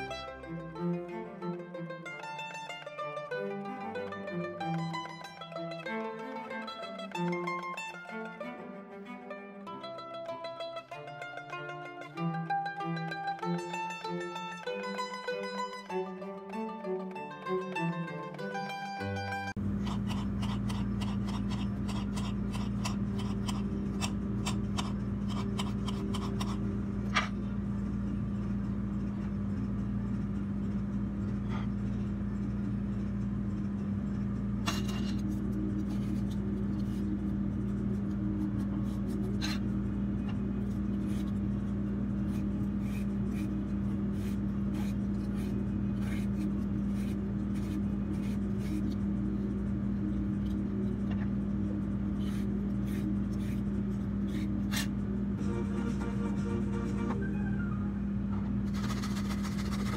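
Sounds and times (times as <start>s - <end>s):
steady low hum: 19.3s - 59.9s
peeler scraping carrot: 19.6s - 27.3s, 40.7s - 49.0s, 52.2s - 55.0s, 58.7s - 59.9s.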